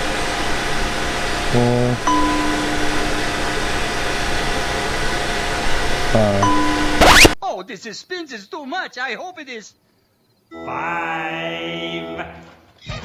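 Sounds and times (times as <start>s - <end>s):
low chord stab: 1.5s - 4.7s, 6.1s - 7.0s
long held tone: 1.6s - 4.9s, 6.2s - 7.3s
bell-like ding: 2.1s - 3.1s, 6.4s - 7.0s.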